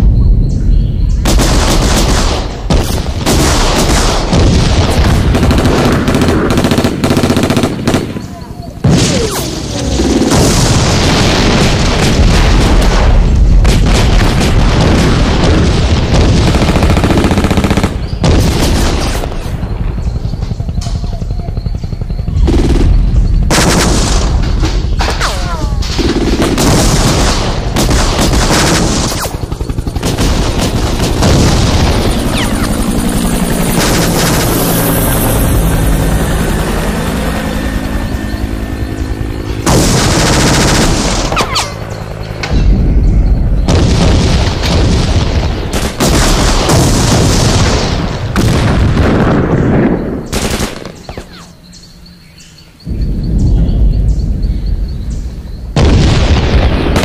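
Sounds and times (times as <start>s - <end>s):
booms: 1.2s - 21.4s, 30.0s - 36.0s, 42.4s - 51.4s, 52.9s - 57.0s
automatic gunfire: 1.3s - 19.6s, 25.1s - 32.8s, 39.7s - 41.8s, 45.7s - 51.5s.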